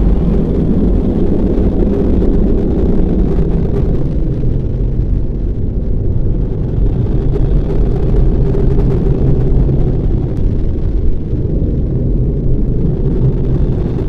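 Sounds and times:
loud low rumble: 0.0s - 14.0s.

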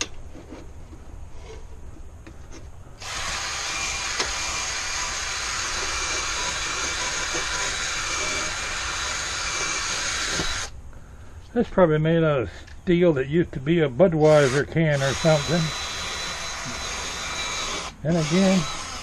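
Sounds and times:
drill wire brush scrubbing whir: 3.0s - 10.7s, 14.2s - 19.0s.

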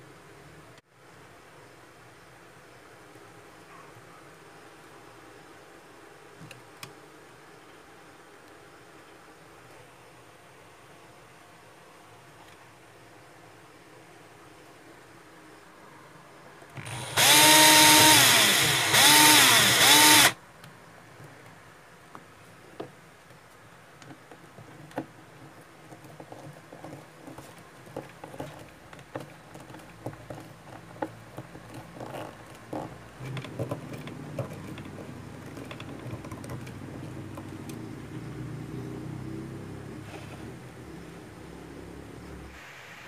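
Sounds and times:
electric drill boring into wood: 16.8s - 20.4s
screwdriver clicking and knocking: 16.8s - 20.4s.

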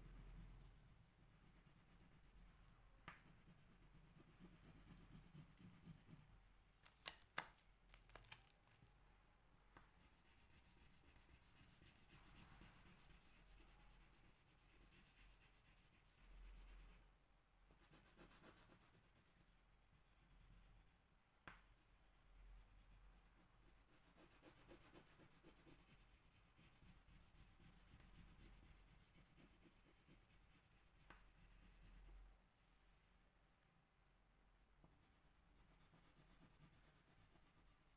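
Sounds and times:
crayon scribbling on paper: 0.0s - 6.3s, 10.0s - 17.1s, 17.7s - 20.8s, 23.7s - 32.1s, 35.5s - 37.9s.

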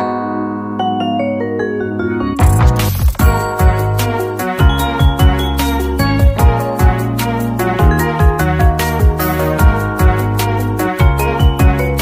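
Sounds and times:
drum beat with kick and hi-hats: 2.4s - 3.8s.

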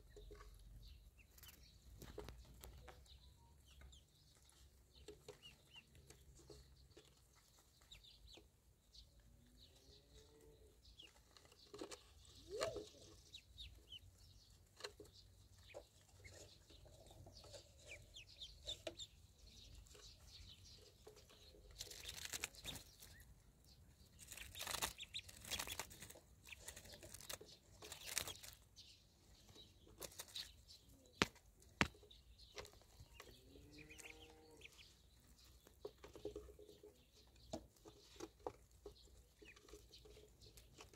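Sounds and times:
ducklings peeping: 0.0s - 40.9s
rustling in grass: 21.8s - 23.1s, 24.2s - 28.6s.

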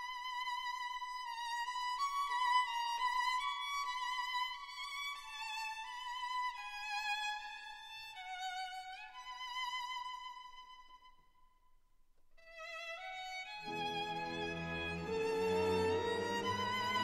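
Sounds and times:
violin slow melody: 12.5s - 17.0s.

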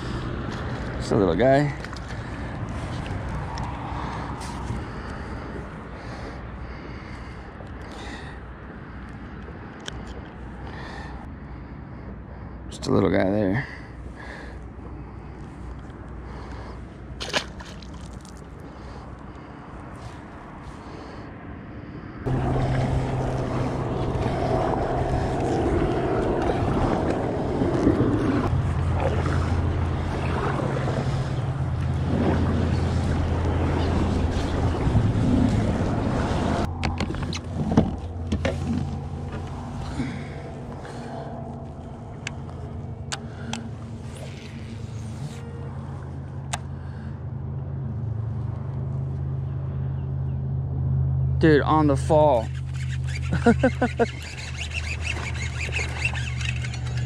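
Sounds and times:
boat motor humming: 0.0s - 12.6s, 13.9s - 57.0s
wind noise on microphone: 22.3s - 38.9s.

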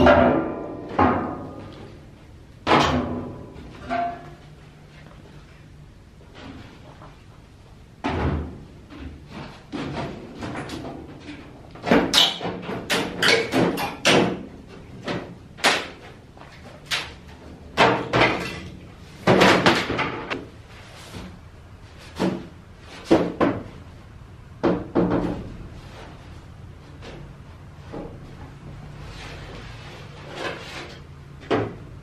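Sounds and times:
sheet-metal duct pipes clanking: 0.0s - 4.8s, 8.0s - 23.8s.

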